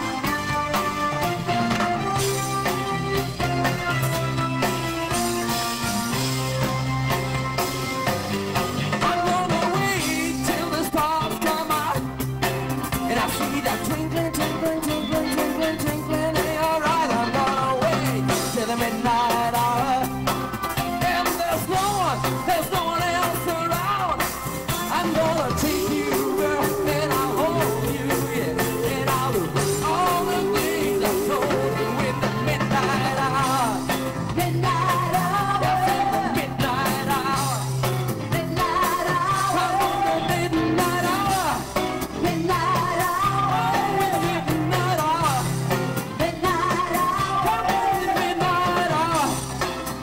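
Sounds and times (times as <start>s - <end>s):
live rock band playing: 0.0s - 50.0s
wavering lead melody: 24.9s - 34.1s.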